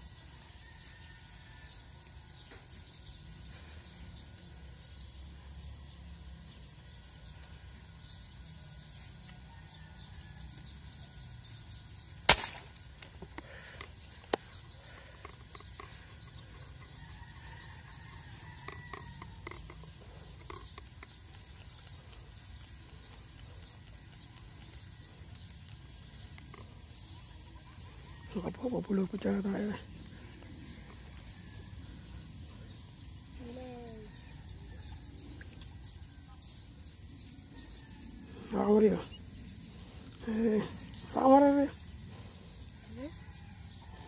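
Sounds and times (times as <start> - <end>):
air rifle shot: 12.3 - 12.8.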